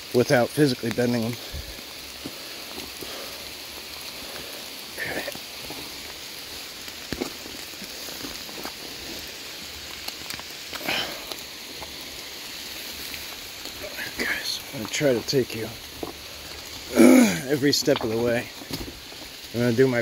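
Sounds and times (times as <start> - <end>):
heavy rain falling: 0.0 - 20.0
rain drop taps: 17.2 - 19.6.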